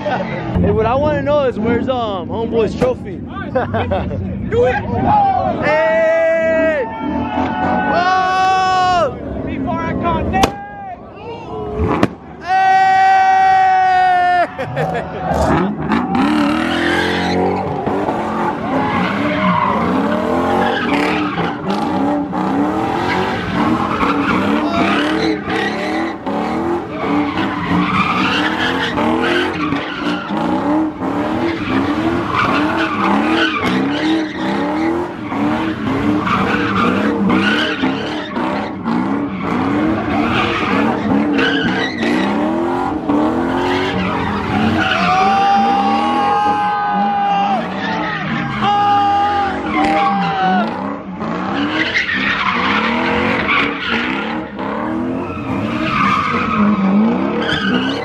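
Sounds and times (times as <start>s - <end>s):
tyres squealing on pavement: 10.3s - 58.0s
car engine revving: 14.1s - 46.6s, 47.5s - 58.0s.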